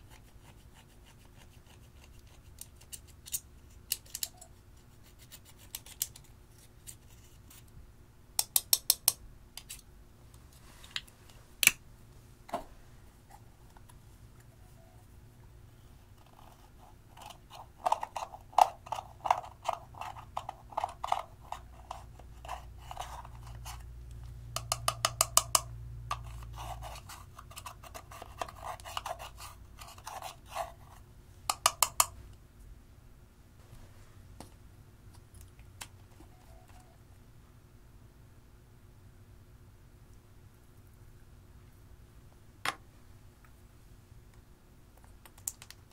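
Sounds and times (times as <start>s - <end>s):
scissor tip scraping powder: 26.2s - 31.0s.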